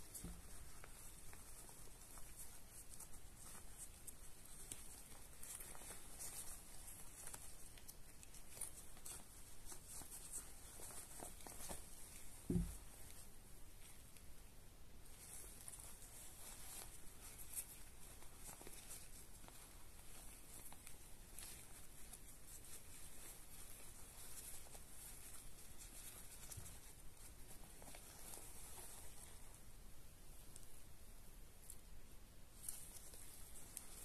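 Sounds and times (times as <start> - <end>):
fabric pouch rustling: 0.0 - 14.2, 15.1 - 29.8, 32.6 - 34.0.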